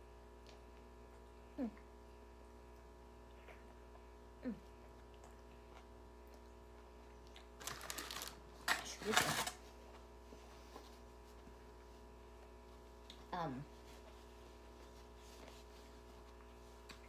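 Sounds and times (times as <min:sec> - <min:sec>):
faint steady hum: 0:00.0 - 0:17.0
person murmuring: 0:01.6 - 0:01.8.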